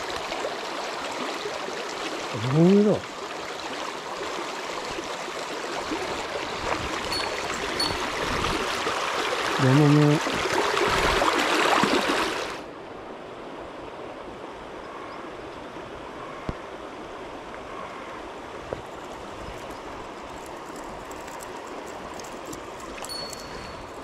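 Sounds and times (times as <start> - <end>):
stream water rushing over stones: 0.0 - 12.7, 18.6 - 24.0.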